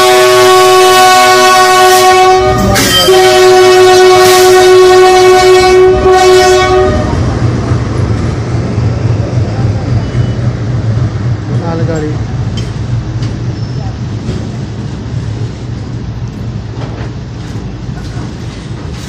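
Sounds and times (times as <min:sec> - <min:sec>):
locomotive horn chord: 0:00.0 - 0:07.2
passing train rumble: 0:00.0 - 0:19.0.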